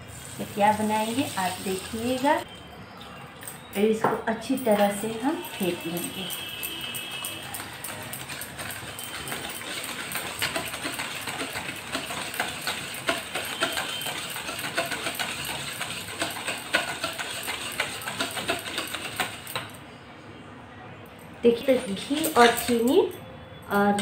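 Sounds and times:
wire whisk scraping steel bowl: 4.7 - 19.8, 21.6 - 23.1.

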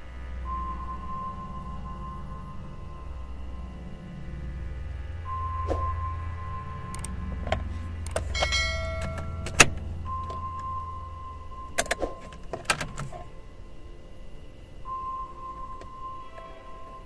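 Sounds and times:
ignition lock clicks: 6.9 - 10.7, 11.7 - 13.3.

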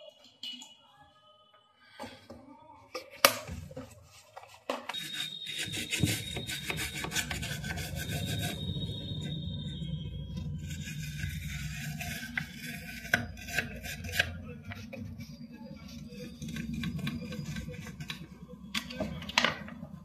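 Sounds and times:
toothbrush scrubbing circuit board: 4.1 - 18.9
steady low hum: 5.0 - 20.0.

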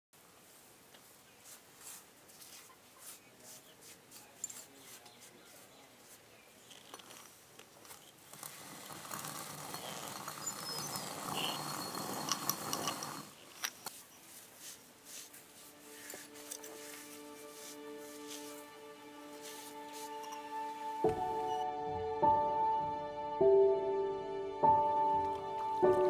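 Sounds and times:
stone quern crushing grain: 1.4 - 20.9.

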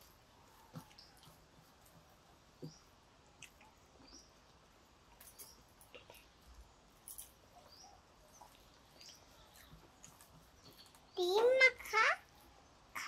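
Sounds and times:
clicks and smacks of eating: 0.0 - 6.4, 8.3 - 11.2.

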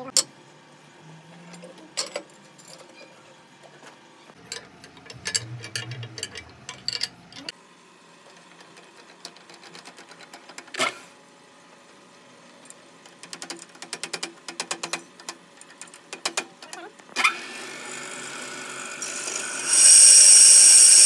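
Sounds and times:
low hum: 4.6 - 7.5.

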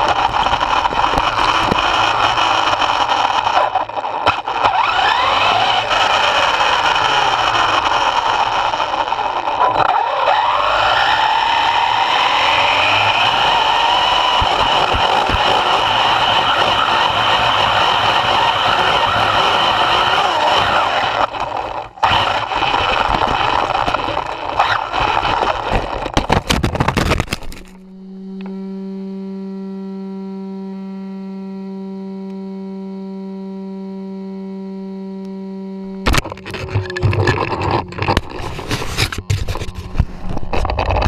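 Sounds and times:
electric motor whine: 0.0 - 41.0
wind: 0.0 - 41.0
steady low hum: 12.2 - 41.0
sharp knocks and clatter: 25.7 - 27.8.

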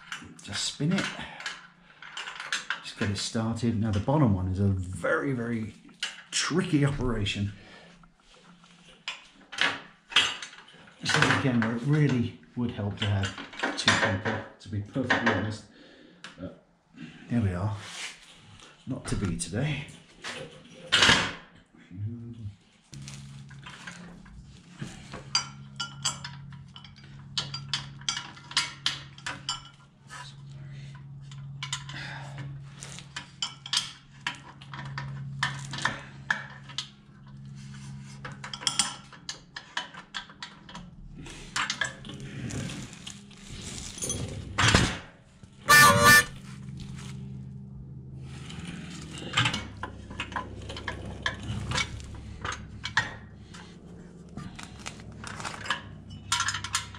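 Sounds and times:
metal clinking and rattling: 25.2 - 29.9, 54.5 - 56.9.

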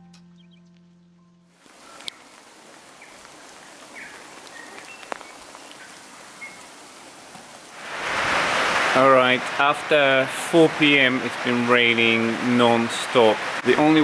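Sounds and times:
raindrop ticks: 1.6 - 7.7
rain falling: 1.6 - 14.0.

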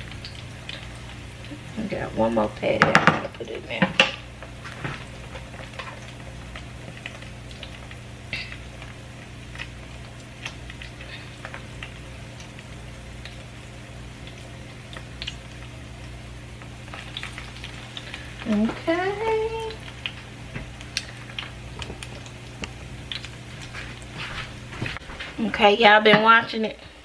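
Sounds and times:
food sizzling in hot oil: 0.0 - 24.7
low steady hum: 0.0 - 27.0.

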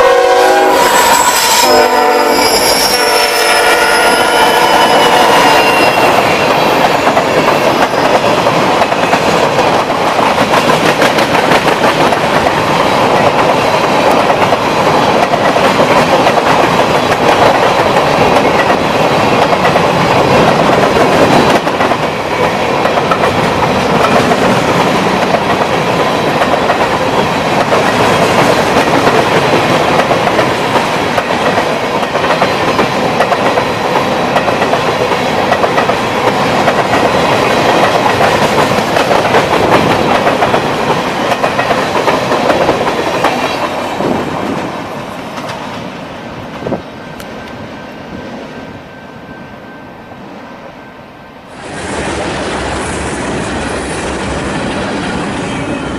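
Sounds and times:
freight train rumble: 0.0 - 50.3, 51.4 - 55.9
train wheels clacking over rail joints: 5.6 - 44.7.

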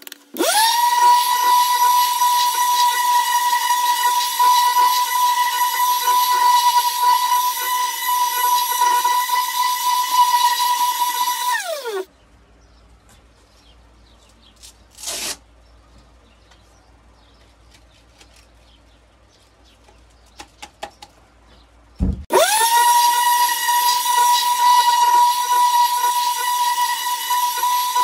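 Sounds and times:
power tool motor whining: 0.4 - 12.1, 22.3 - 28.0
thump: 22.0 - 22.3.

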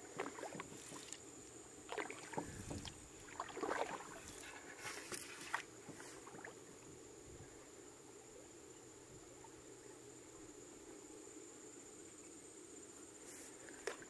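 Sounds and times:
paddle splashes: 0.0 - 6.7, 13.5 - 14.0
faint high-pitched hum: 0.0 - 14.0
knocks against canoe hull: 2.3 - 3.0.

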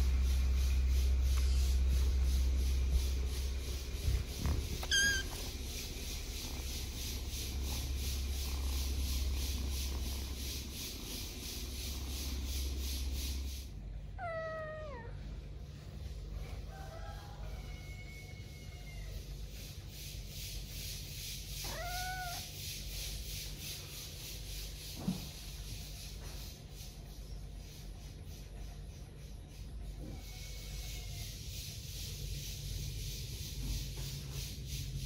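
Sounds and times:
kittens mewing: 4.8 - 5.6, 14.2 - 15.2, 21.6 - 22.5.

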